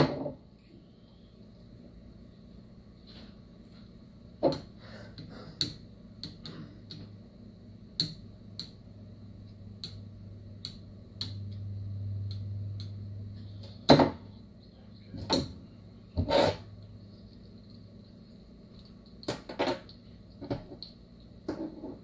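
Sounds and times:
test leads clicking and tapping: 7.9 - 13.4.

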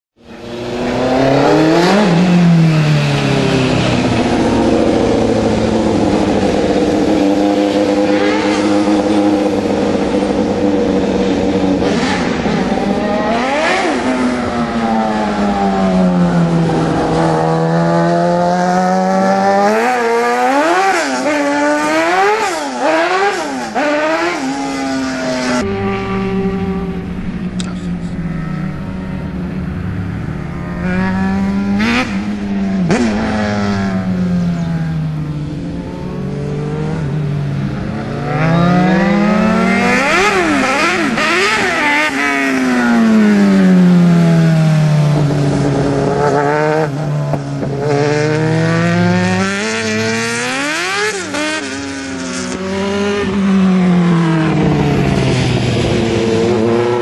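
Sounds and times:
engine revving up: 0.2 - 57.0
race car engines at high revs: 0.2 - 57.0.

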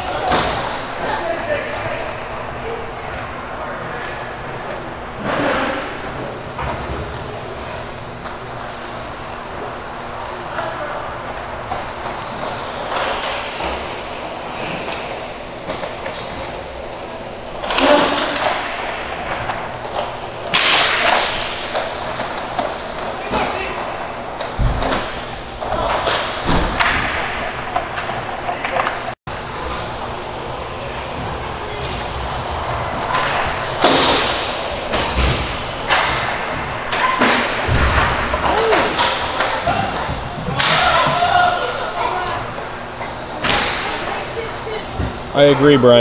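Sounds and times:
skate wheels rolling on rink floor: 0.0 - 46.0
hockey sticks clacking: 17.6 - 29.9, 31.2 - 41.4.

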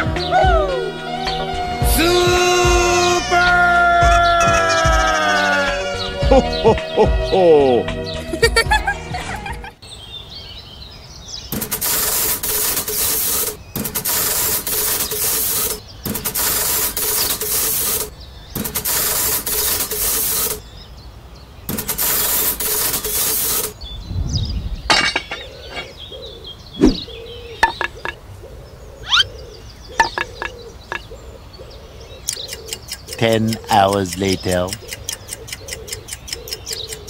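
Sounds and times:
welding crackling and hissing: 11.6 - 20.6, 21.7 - 23.8.

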